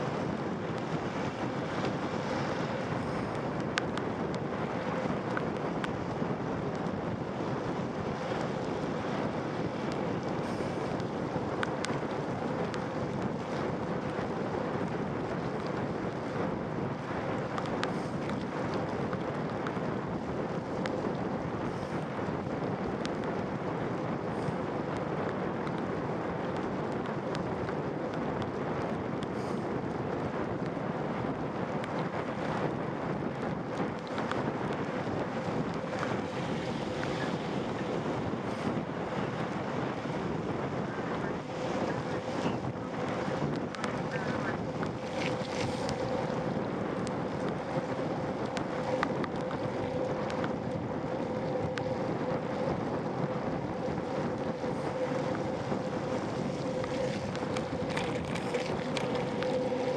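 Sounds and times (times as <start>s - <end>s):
faint steady hum: 0.0s - 59.9s
wind buffeting microphone: 0.0s - 59.9s.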